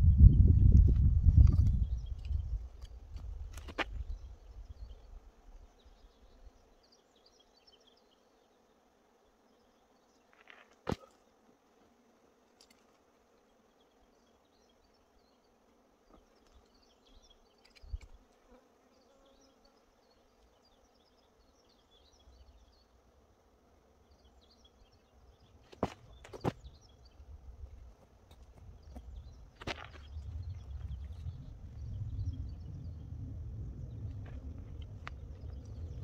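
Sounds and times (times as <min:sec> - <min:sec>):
faint insects buzzing: 0:00.4 - 0:36.0
low rumble: 0:30.0 - 0:36.0.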